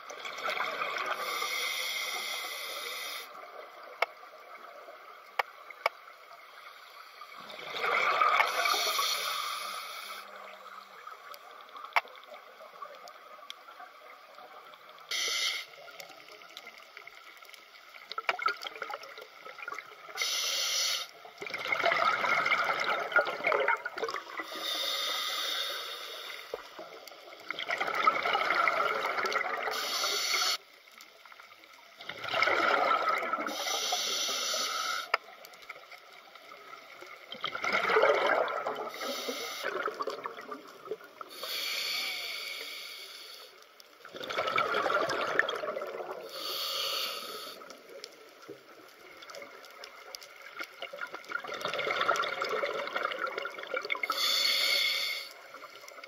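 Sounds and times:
exhaled air bubbling: 0:00.0 - 0:01.5, 0:07.2 - 0:13.2, 0:21.3 - 0:24.8, 0:26.6 - 0:30.0, 0:32.0 - 0:34.0, 0:35.0 - 0:41.6, 0:44.0 - 0:54.4
regulator inhale hiss: 0:01.1 - 0:03.4, 0:08.5 - 0:10.4, 0:15.1 - 0:15.9, 0:20.2 - 0:21.2, 0:24.4 - 0:26.9, 0:29.7 - 0:30.8, 0:33.5 - 0:35.4, 0:38.9 - 0:39.8, 0:41.2 - 0:43.7, 0:46.2 - 0:48.0, 0:54.0 - 0:55.8.

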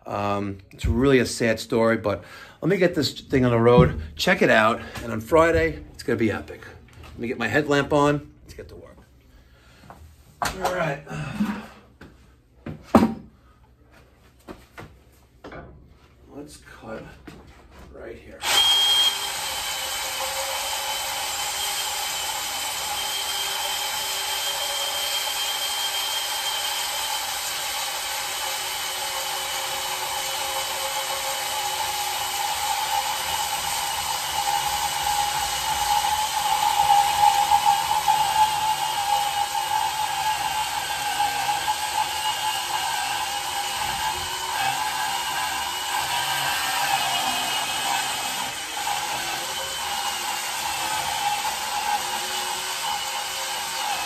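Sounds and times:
power saw cutting pipe: 0:18.4 - 0:54.0.

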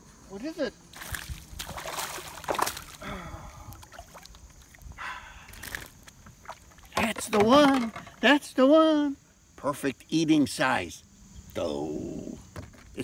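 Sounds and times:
fish splashing in water: 0:01.0 - 0:03.0, 0:03.7 - 0:04.8.

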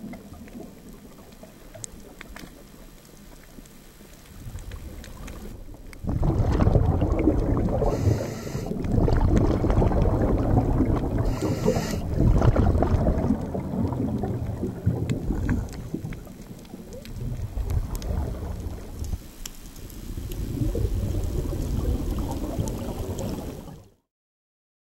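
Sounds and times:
underwater rumbling rush: 0:00.0 - 0:24.0
hissing bursts: 0:07.8 - 0:08.8, 0:11.3 - 0:12.1.

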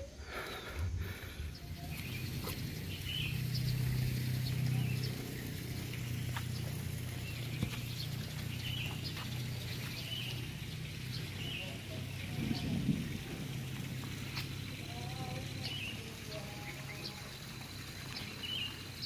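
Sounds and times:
birds chirping: 0:00.0 - 0:19.0
footsteps: 0:05.8 - 0:10.4, 0:13.2 - 0:14.6.

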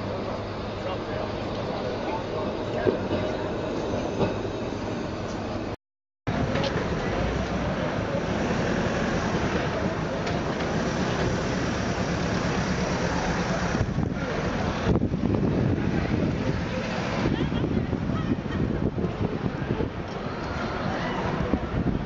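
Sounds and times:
tram rumbling on track: 0:00.0 - 0:22.0
wind buffeting microphone: 0:13.5 - 0:22.0.

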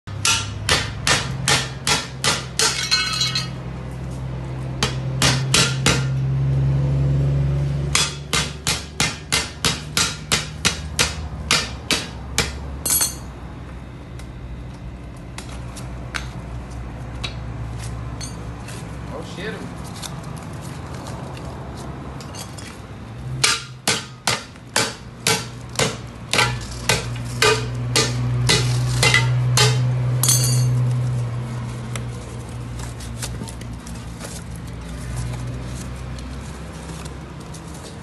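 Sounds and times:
metal tool striking steel cylinder: 0:12.8 - 0:13.3, 0:27.4 - 0:30.8.

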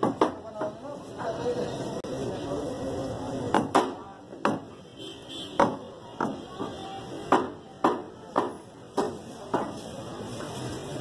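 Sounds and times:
cleaver chopping on wooden block: 0:05.6 - 0:06.4.

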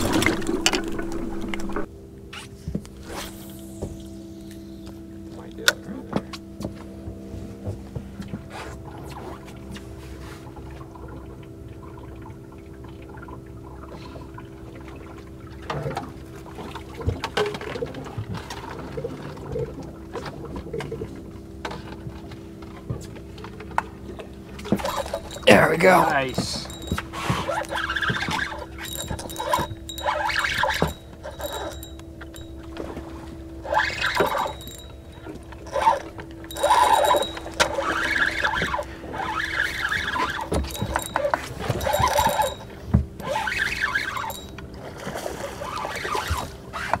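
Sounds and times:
steady low hum: 0:00.0 - 0:47.0
water splashing and trickling: 0:08.1 - 0:47.0
fishing reel being cranked: 0:24.7 - 0:32.9, 0:33.6 - 0:44.6.

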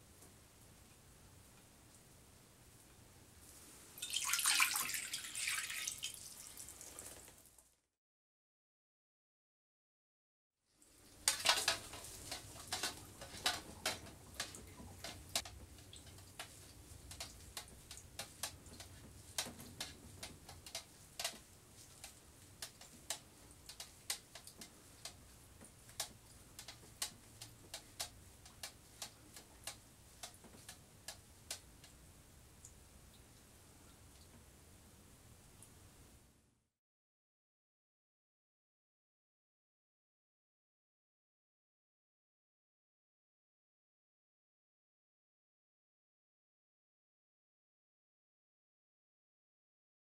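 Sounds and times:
liquid dripping: 0:04.0 - 0:07.6.

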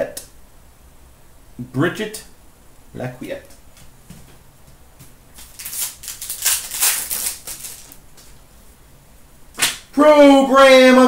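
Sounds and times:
cards rustling: 0:05.3 - 0:08.4
foil wrapper crinkling and tearing: 0:05.4 - 0:08.0.

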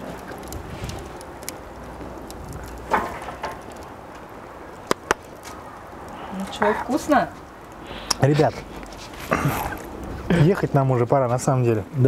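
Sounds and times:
wind rumble on microphone: 0:00.0 - 0:07.8.

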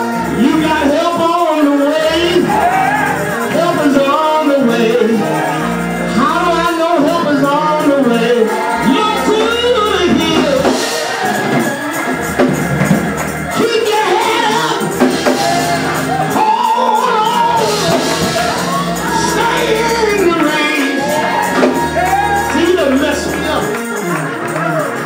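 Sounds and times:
man singing into a microphone: 0:00.0 - 0:10.8, 0:16.3 - 0:21.8
keyboard chords: 0:00.0 - 0:25.0
tambourine jingling: 0:00.0 - 0:25.0.

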